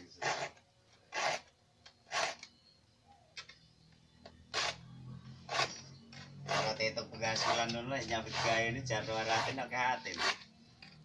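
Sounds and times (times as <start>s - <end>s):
file rasping on saw teeth: 0.2s - 1.5s, 6.5s - 10.4s.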